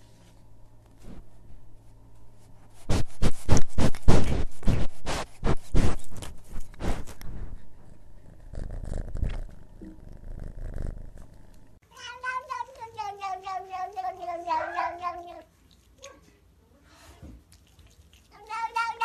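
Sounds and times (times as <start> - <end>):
cat meowing: 11.9 - 15.5.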